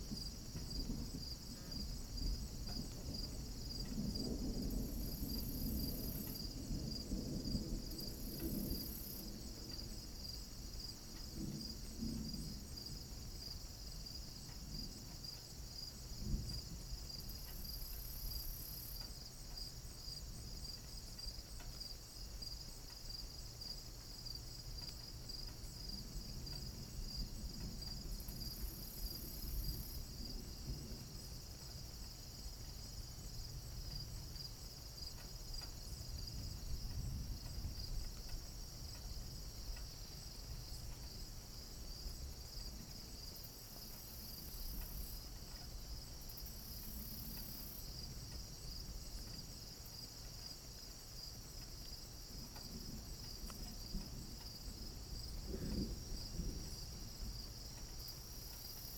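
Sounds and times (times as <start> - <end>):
crickets chirping: 0.0 - 58.9.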